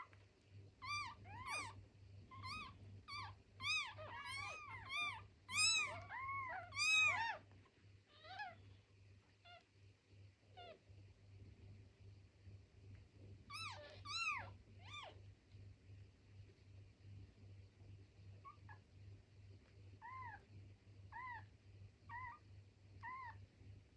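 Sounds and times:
kittens mewing: 0.8s - 7.4s, 21.1s - 21.5s.

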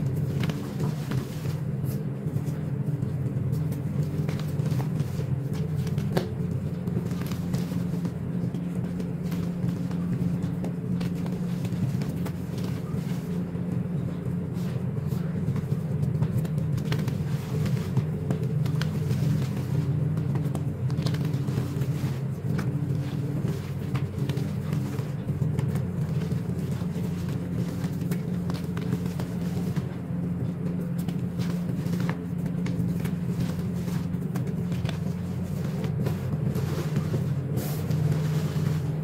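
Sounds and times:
steady low hum: 0.0s - 39.0s
hands squeezing powder: 16.2s - 39.0s.

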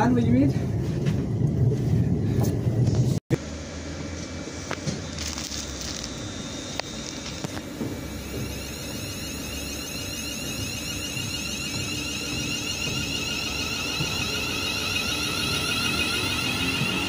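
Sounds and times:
wheels rumbling on rails: 0.0s - 17.0s
electric train motor whine: 2.8s - 17.0s.

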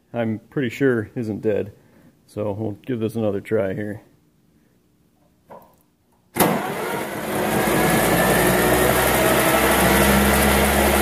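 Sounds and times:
starter motor cranking engine: 6.4s - 11.0s.

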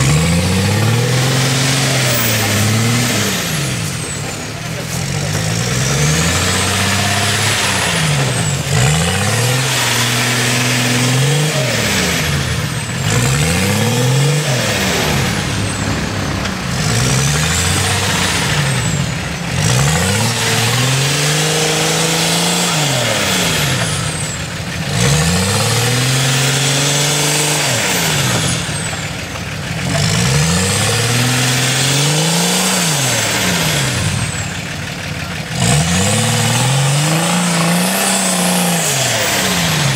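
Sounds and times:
diesel engine revving hard: 0.0s - 39.9s.

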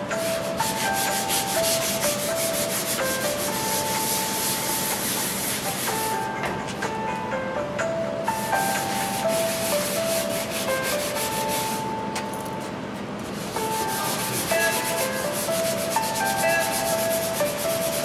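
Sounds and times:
sandpaper scratching on metal: 0.2s - 6.0s, 13.4s - 18.0s.

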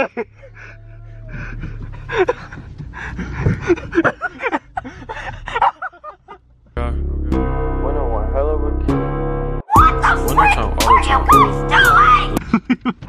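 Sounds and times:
car engine hum: 0.0s - 6.8s
music: 6.8s - 13.0s
indistinct voices: 9.7s - 12.4s.

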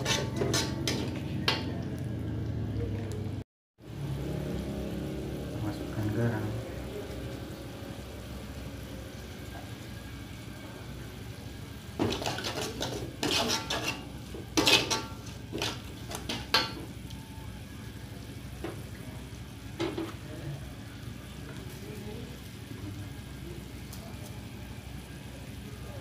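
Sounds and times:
metal spatula scraping a wok: 0.0s - 1.7s, 12.0s - 16.9s
food frying in oil: 0.0s - 26.0s.

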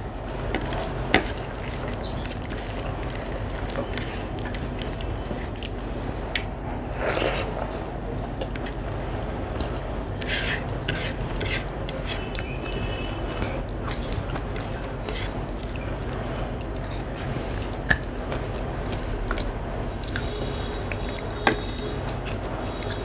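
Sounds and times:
steady low hum: 0.0s - 23.0s
fingers mixing rice on a plate: 0.3s - 7.6s, 8.4s - 23.0s
mouth chewing: 0.5s - 7.6s, 8.4s - 12.7s, 13.4s - 16.0s, 16.6s - 17.1s, 17.7s - 23.0s.

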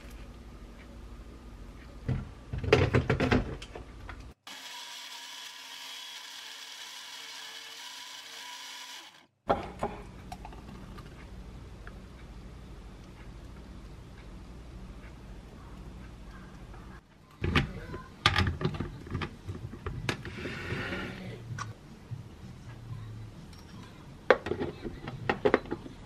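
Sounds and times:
blender running: 4.4s - 9.3s.

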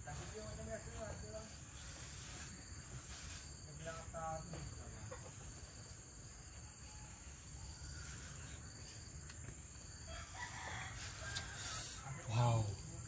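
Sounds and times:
rooster crowing: 10.0s - 12.6s.

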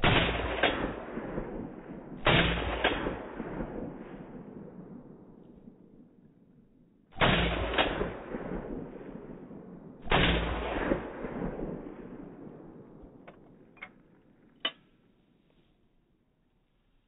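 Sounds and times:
shotgun blast: 0.0s - 4.6s, 7.2s - 9.4s, 10.0s - 12.4s.

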